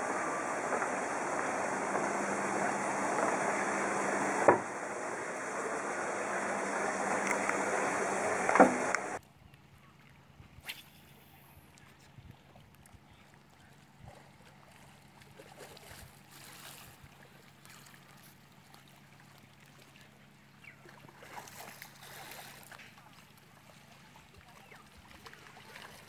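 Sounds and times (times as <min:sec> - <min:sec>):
distant voices: 0:00.0 - 0:09.2
small waves lapping: 0:00.0 - 0:09.2, 0:09.8 - 0:26.0
steady low hum: 0:00.0 - 0:09.2.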